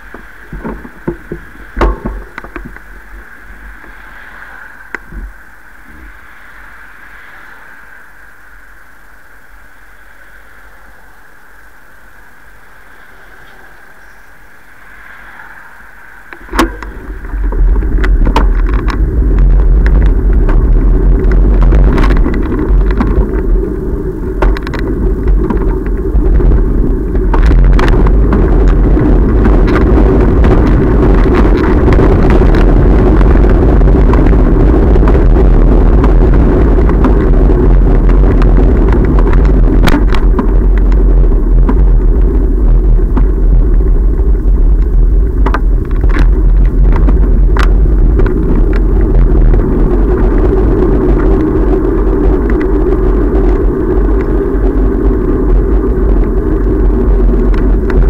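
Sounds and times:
clicks and knocks of bike: 0.0s - 4.3s, 16.2s - 58.0s
bicycle riding rumble: 0.0s - 58.0s.

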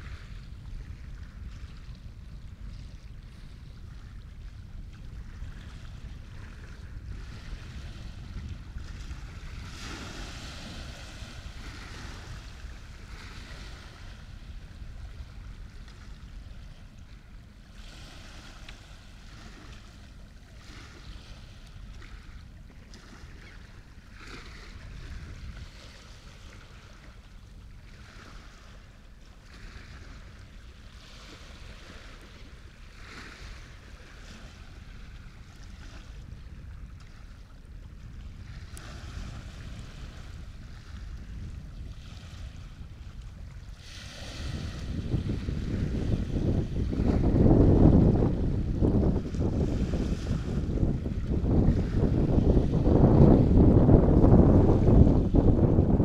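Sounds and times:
waves washing and splashing: 0.0s - 56.0s
steady low rumble: 10.6s - 22.8s.

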